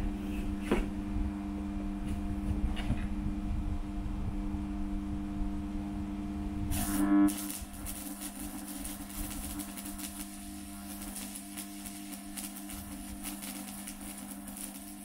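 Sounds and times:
low hum: 0.0 - 14.5
welding arc crackle: 6.7 - 15.0.

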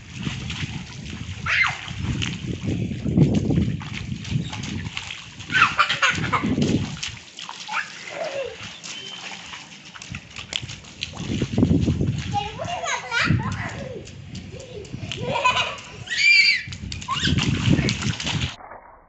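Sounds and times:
feet splashing in water: 0.0 - 18.6
children's cries: 7.7 - 8.7, 12.6 - 17.4.

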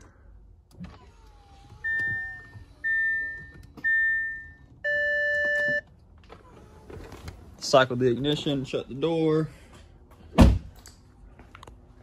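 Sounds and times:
dashboard warning chimes: 1.8 - 5.9.

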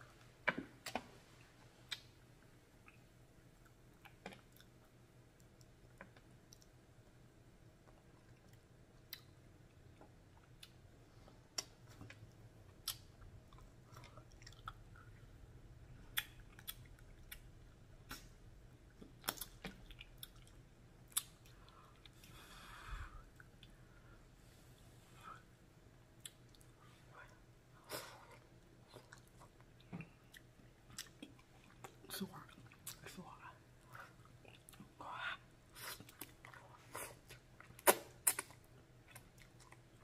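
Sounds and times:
close-up chewing noodles: 11.9 - 15.4.

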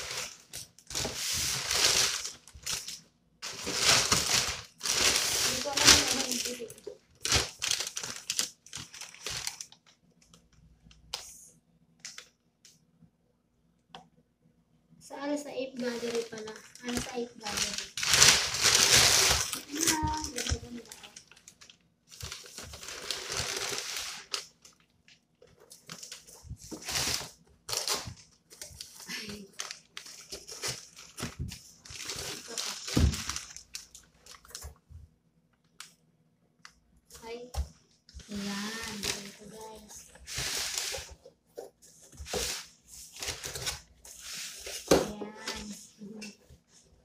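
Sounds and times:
cardboard rustling and scraping: 0.0 - 6.6, 25.6 - 29.0, 38.2 - 45.1.

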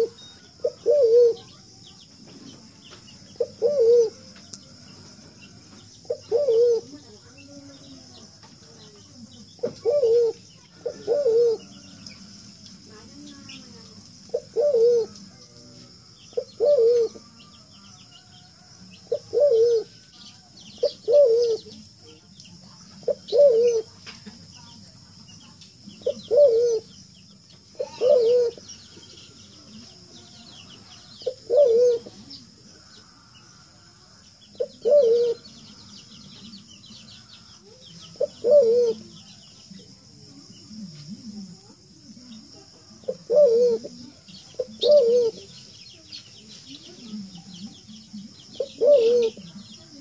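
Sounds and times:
pigeon cooing: 0.0 - 1.7, 3.3 - 7.0, 9.6 - 12.3, 14.3 - 17.3, 19.0 - 20.1, 20.7 - 21.8, 23.0 - 24.0, 26.0 - 27.0, 27.7 - 29.2, 30.8 - 32.9, 34.5 - 35.6, 38.0 - 39.5, 42.4 - 45.7, 46.9 - 50.0
high insect hum: 0.0 - 50.0
small birds chirping: 0.0 - 50.0.

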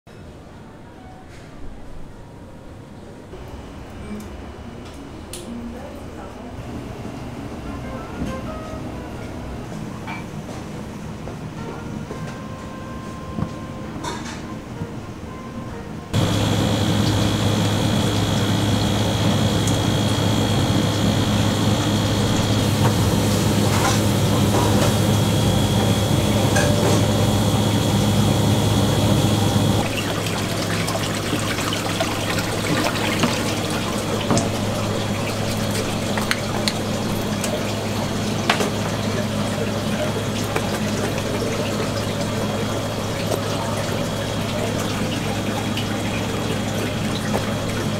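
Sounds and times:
low pump hum: 16.1 - 47.9
water flowing in tank: 16.2 - 47.9.

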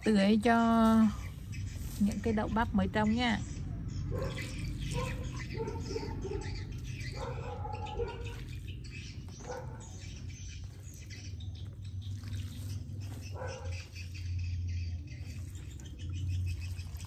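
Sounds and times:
animal calls: 3.6 - 11.2, 12.1 - 14.6.

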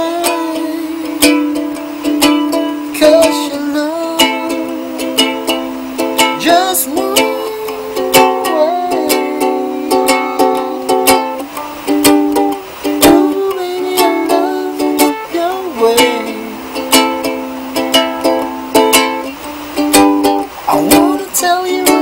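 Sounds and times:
ukulele strumming: 0.0 - 22.0.

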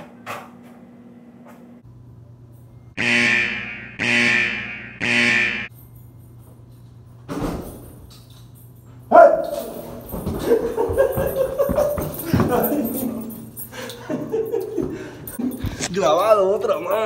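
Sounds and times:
short alarm blasts: 3.0 - 5.7
scuffling: 9.4 - 13.6.

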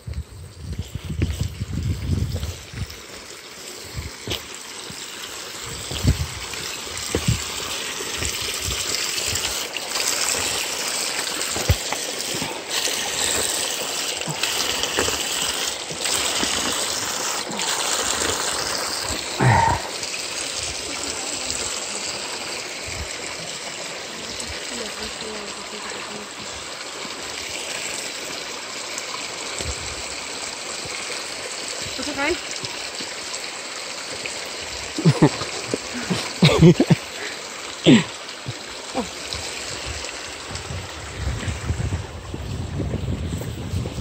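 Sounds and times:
running water rushing: 0.0 - 44.0
footsteps on rocky path: 5.9 - 7.6, 11.4 - 12.6.

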